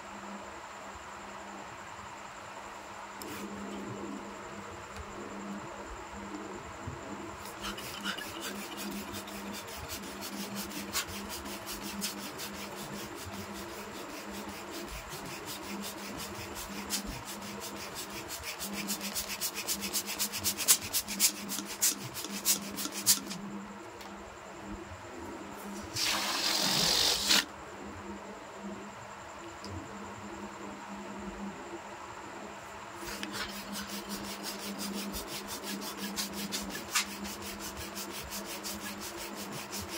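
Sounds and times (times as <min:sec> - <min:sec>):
hands rubbing balloons: 0:07.5 - 0:23.4, 0:25.9 - 0:27.4, 0:33.0 - 0:39.9
hiss of rushing air: 0:25.6 - 0:27.5.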